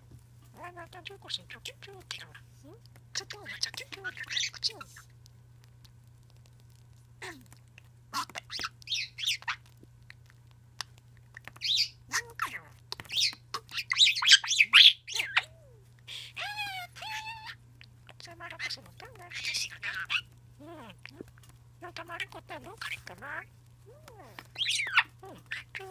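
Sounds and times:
budgerigar chattering: 0:03.2 - 0:05.1, 0:08.1 - 0:09.7, 0:11.6 - 0:15.5, 0:16.3 - 0:23.5, 0:24.3 - 0:25.9.

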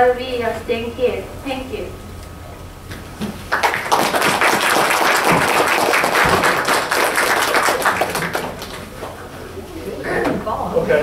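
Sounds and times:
audience applauding: 0:03.5 - 0:09.2.

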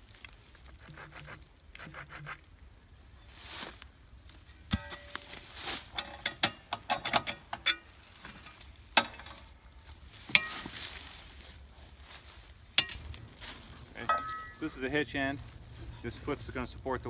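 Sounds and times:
dry leaves crunching underfoot: 0:00.0 - 0:01.6, 0:02.9 - 0:06.3, 0:07.8 - 0:16.4
metal plates clinking and clanking: 0:04.7 - 0:09.6, 0:10.3 - 0:10.8, 0:12.8 - 0:13.1, 0:14.0 - 0:14.8.

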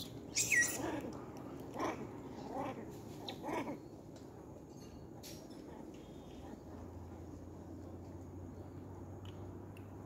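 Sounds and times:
macaque calling: 0:00.3 - 0:01.1.

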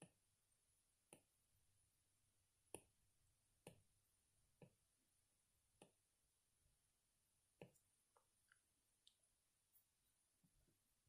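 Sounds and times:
stylus tapping glass screen: 0:02.6 - 0:03.0, 0:03.6 - 0:04.9, 0:05.7 - 0:06.1, 0:07.5 - 0:09.8.

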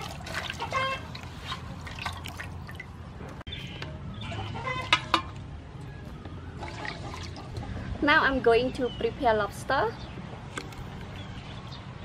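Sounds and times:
water splashing in a metal basin: 0:00.0 - 0:03.4, 0:06.5 - 0:07.7.

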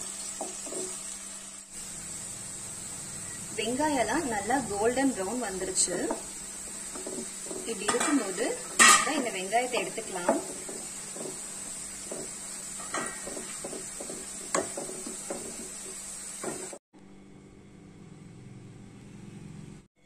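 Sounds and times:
onions sizzling in hot oil: 0:00.0 - 0:16.8.

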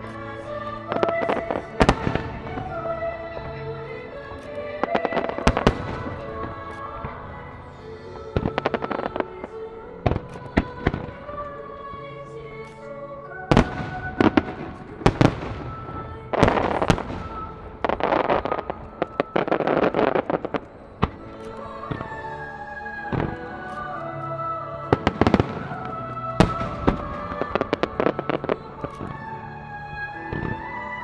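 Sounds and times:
fireworks crackling: 0:00.0 - 0:12.9, 0:13.5 - 0:31.0
background music: 0:00.0 - 0:31.0
fireworks banging: 0:00.8 - 0:11.6, 0:13.5 - 0:22.2, 0:24.8 - 0:29.4.

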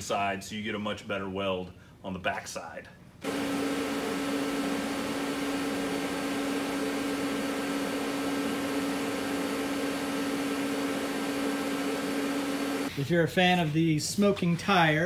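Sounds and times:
welding arc buzzing: 0:03.2 - 0:12.9.

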